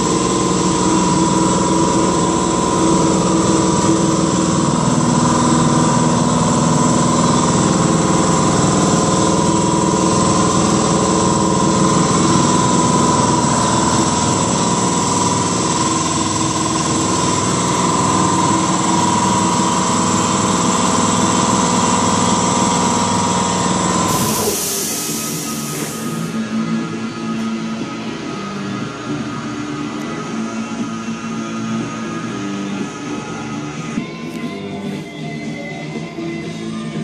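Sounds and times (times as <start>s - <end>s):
machine motor humming and whining: 0.0s - 35.1s
music: 26.1s - 37.0s.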